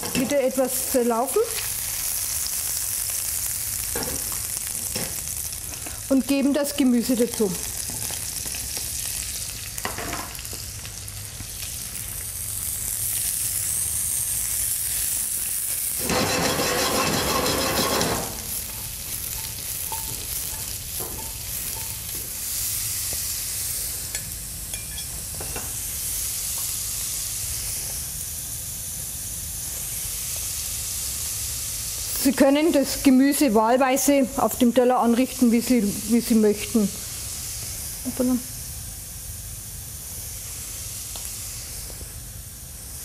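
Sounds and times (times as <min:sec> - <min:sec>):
vegetables sizzling in frying pan: 0:00.0 - 0:43.0.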